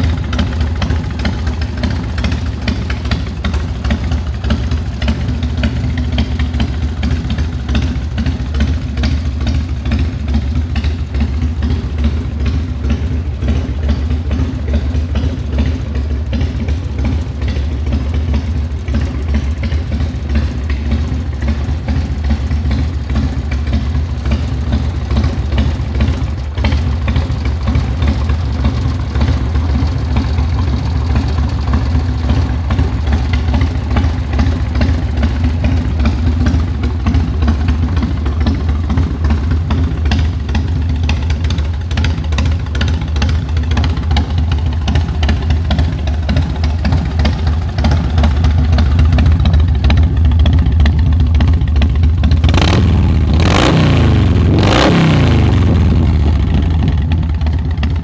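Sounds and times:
motorcycle engine idling and revving: 0:00.0 - 0:58.0.

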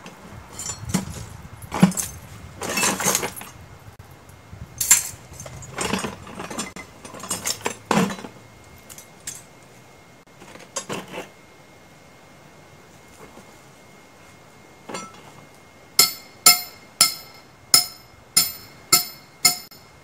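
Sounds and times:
metal gear jangling in plastic bucket: 0:00.5 - 0:03.5, 0:04.8 - 0:08.3.

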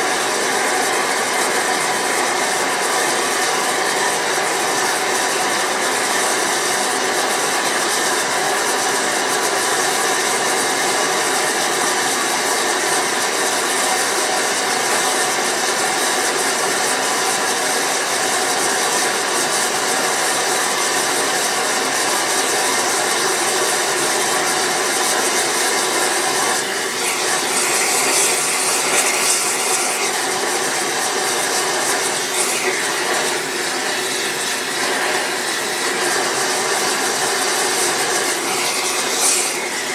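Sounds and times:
furnace burner rushing: 0:00.0 - 0:39.9.

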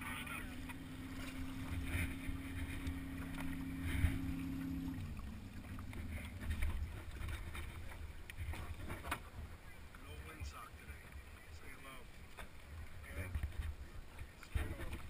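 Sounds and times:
steady hum: 0:00.0 - 0:08.6
low wind rumble: 0:00.0 - 0:15.0.

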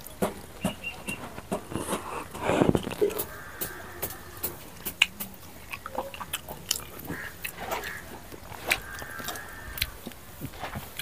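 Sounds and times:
person chewing with mouth smacks: 0:00.8 - 0:11.0.

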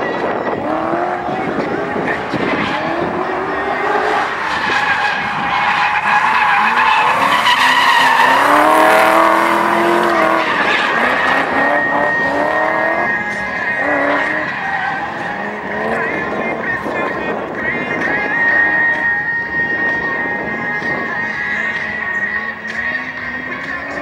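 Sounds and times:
car engine revving hard: 0:00.0 - 0:24.0
tyres squealing: 0:01.1 - 0:16.7.

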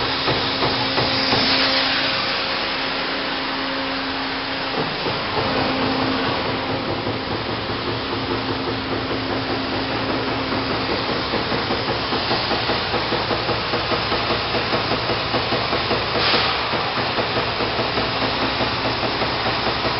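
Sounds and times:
burst of hissing: 0:00.0 - 0:06.3, 0:16.0 - 0:16.9
punch press humming: 0:00.0 - 0:19.9
regular machine pulse: 0:04.4 - 0:19.9.

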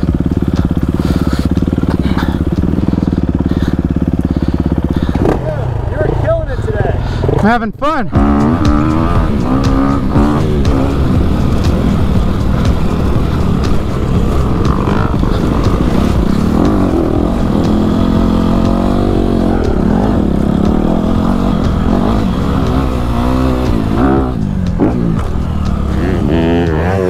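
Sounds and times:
dirt bike engine running: 0:00.0 - 0:27.0.

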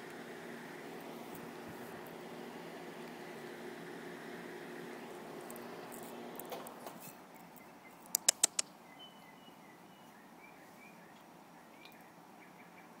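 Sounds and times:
kitten crunching kibble: 0:08.1 - 0:08.6.

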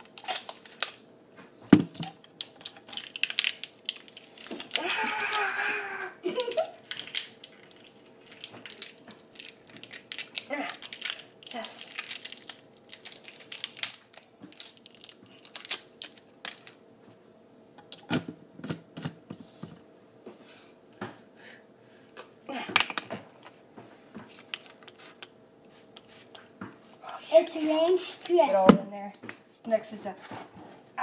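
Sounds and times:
clicks taps and crinkles: 0:06.3 - 0:19.8, 0:22.1 - 0:30.6.

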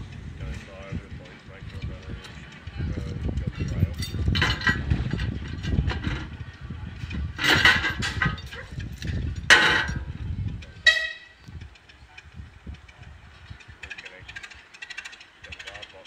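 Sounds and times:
low locomotive rumble: 0:00.0 - 0:16.0
locomotive whistle toots: 0:10.8 - 0:11.4.

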